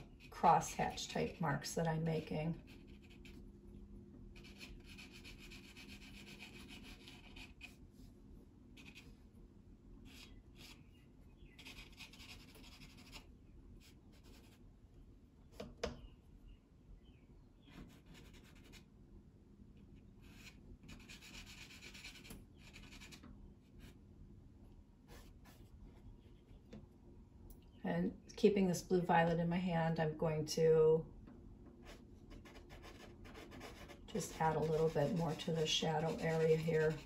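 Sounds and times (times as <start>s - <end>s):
pastel scratching on paper: 4.4s - 7.8s, 11.6s - 13.2s, 20.2s - 23.2s, 31.8s - 37.0s.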